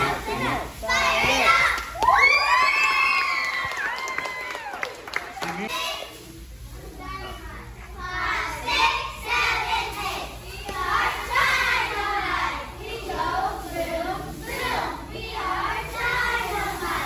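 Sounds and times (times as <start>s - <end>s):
girls chanting a cheer: 0.0s - 2.6s, 8.0s - 17.0s.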